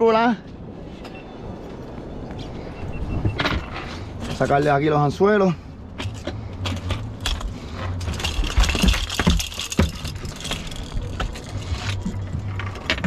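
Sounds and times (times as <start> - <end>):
steady low rumble: 0.4 - 13.0
metallic clicks and rattles: 6.0 - 13.0.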